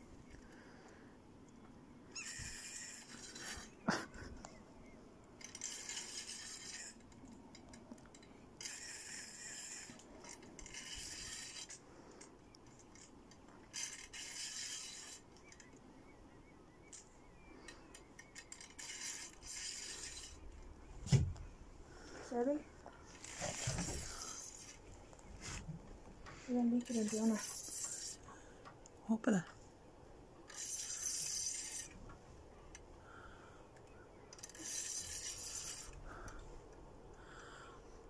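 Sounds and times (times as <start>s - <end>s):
fishing reel whirring: 2.1s - 3.8s, 5.4s - 7.1s, 8.1s - 11.8s, 13.7s - 15.6s, 17.7s - 20.6s, 26.8s - 28.3s, 30.5s - 32.0s, 34.3s - 36.3s.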